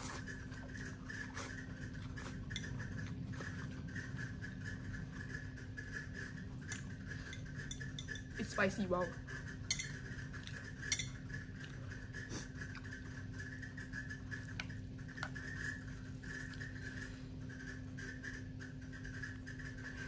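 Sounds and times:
utensil clinking against bowl: 7.2 - 8.6, 9.6 - 11.3.

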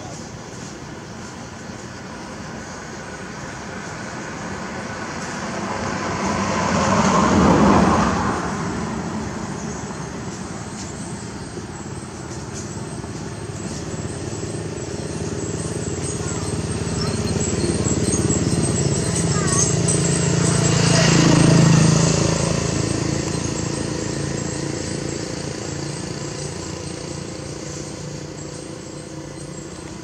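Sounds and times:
traffic rumble: 0.0 - 30.0
vehicle passing: 2.7 - 30.0.

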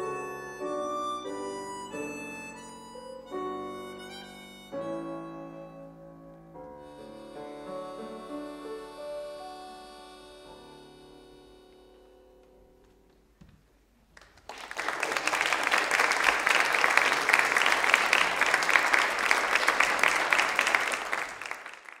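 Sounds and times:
harmonica and piano chord: 0.0 - 13.0
audience applause: 14.2 - 22.0.

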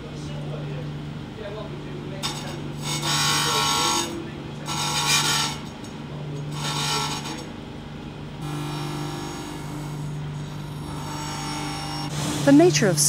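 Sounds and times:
steady low hum: 0.0 - 13.0
grinder wheel grinding steel: 2.2 - 5.8, 6.5 - 7.5, 8.4 - 12.6.

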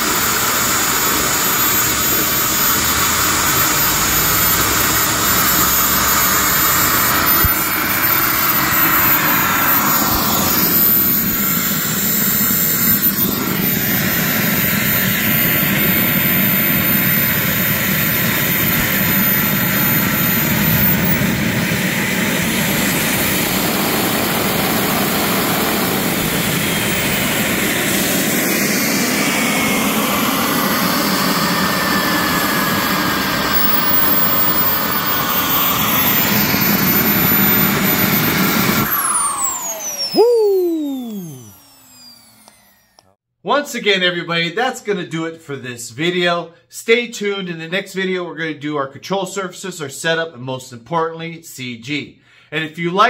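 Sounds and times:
exhaust rushing: 0.0 - 42.4
jet turbine whine: 0.0 - 43.2.

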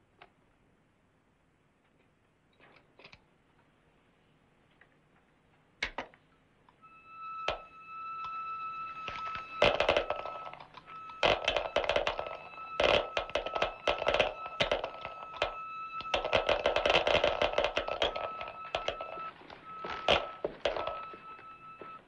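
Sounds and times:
steady high electronic tone: 6.8 - 22.0
gadget clicking and clattering: 9.0 - 22.0.

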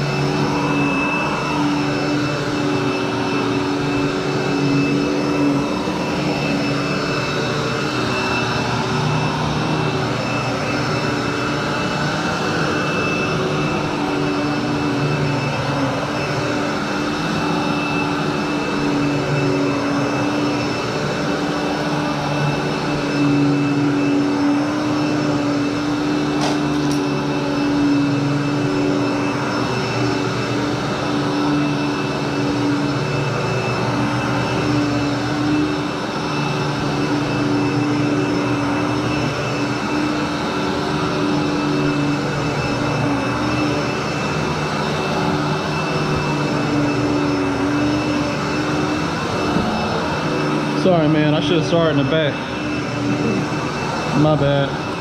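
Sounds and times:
vacuum cleaner running: 0.0 - 55.0.

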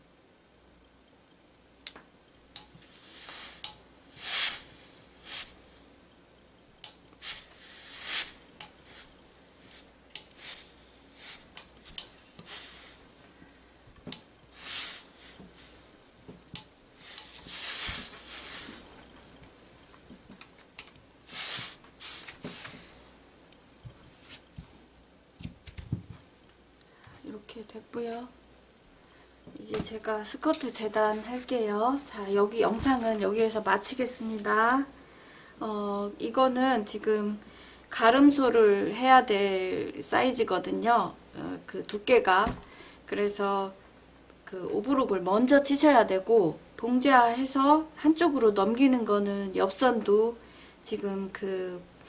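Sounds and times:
steam iron hissing: 2.6 - 5.9, 7.2 - 13.4, 14.5 - 16.0, 16.9 - 18.9, 21.2 - 23.1.

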